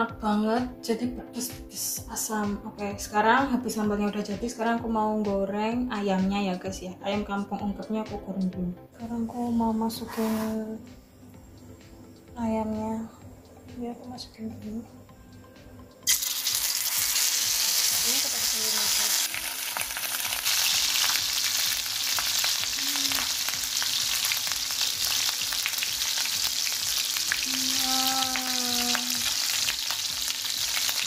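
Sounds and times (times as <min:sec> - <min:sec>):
chicken sizzling in hot oil: 0:16.0 - 0:31.0
oil spitting and crackling: 0:16.1 - 0:24.3.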